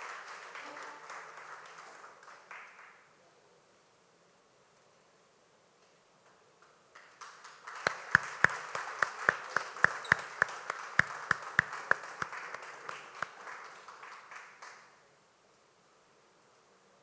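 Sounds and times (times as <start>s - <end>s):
audience applause: 0.0s - 2.9s, 7.0s - 15.0s
close loud hand claps: 0.0s - 3.0s, 6.9s - 15.0s.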